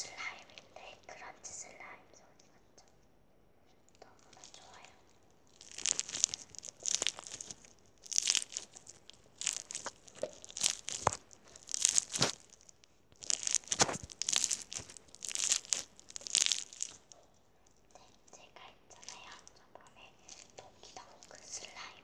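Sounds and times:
crunchy slime crackling and popping: 0:04.0 - 0:21.8.

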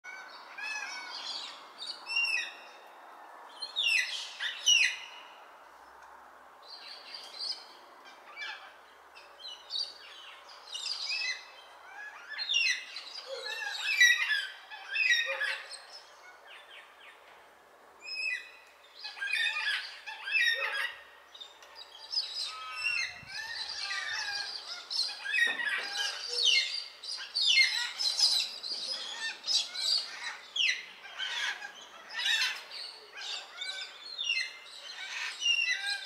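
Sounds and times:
faint steady hiss: 0:15.7 - 0:20.4.

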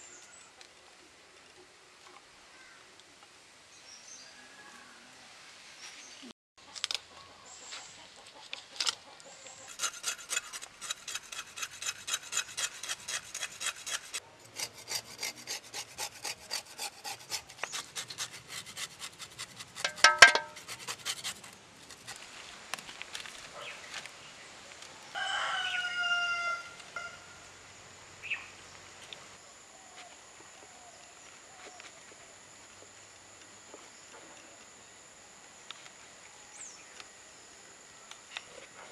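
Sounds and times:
rooster crowing: 0:04.2 - 0:05.2, 0:25.1 - 0:27.4
knife scraping fish scales: 0:09.6 - 0:22.2
knife blade ringing knock: 0:19.8 - 0:20.6.

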